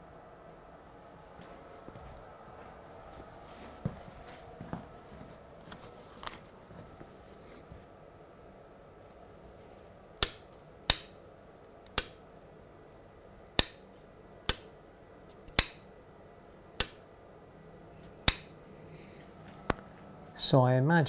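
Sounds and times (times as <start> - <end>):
sharp plastic clicks: 10.2 - 11.2, 11.8 - 12.2, 13.6 - 14.7, 15.3 - 15.9, 16.8 - 17.0, 18.0 - 18.6.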